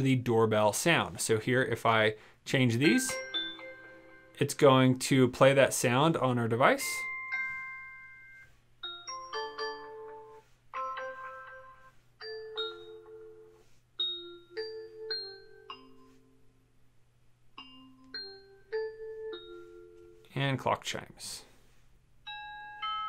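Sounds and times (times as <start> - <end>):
electronic doorbell chimes: 2.8 - 4.6, 6.8 - 16.4, 17.6 - 20.3, 22.2 - 23.0.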